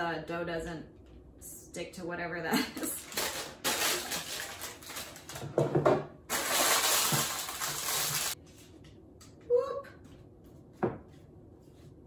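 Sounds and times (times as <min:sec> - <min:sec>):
parchment paper crinkling: 0:03.0 - 0:05.4, 0:06.3 - 0:08.4.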